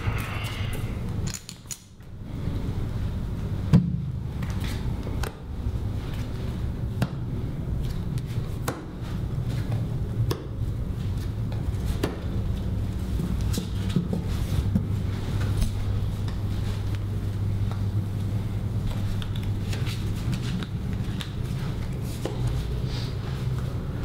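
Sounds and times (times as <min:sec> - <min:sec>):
low steady drone: 0:00.0 - 0:01.4.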